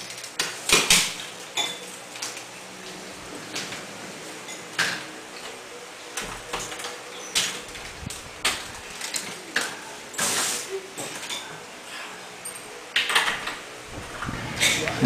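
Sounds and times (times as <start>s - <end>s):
suitcase rolling on tile floor: 0.0s - 5.6s.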